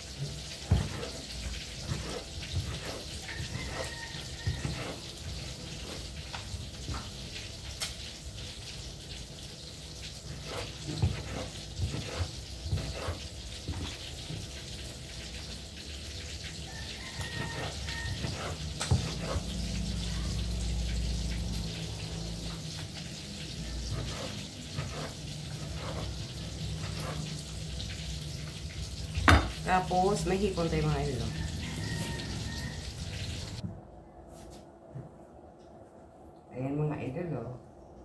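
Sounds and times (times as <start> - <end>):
knife chopping on wooden board: 0.7 - 1.2, 10.4 - 14.0, 17.4 - 19.5.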